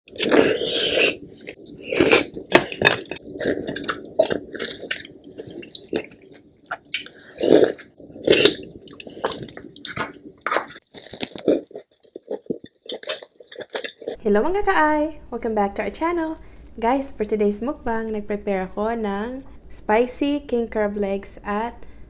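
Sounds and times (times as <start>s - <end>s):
slurping: 0.1s - 14.2s
wet chewing and biting: 0.1s - 14.2s.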